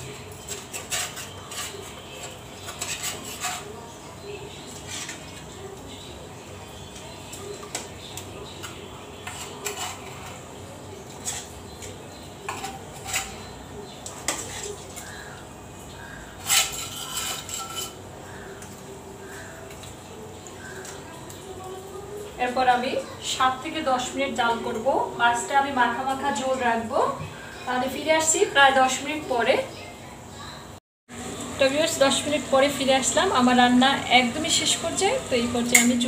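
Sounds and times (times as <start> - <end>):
metal spatula scraping cooking pot: 0.0 - 5.6, 7.4 - 15.4, 16.1 - 19.8.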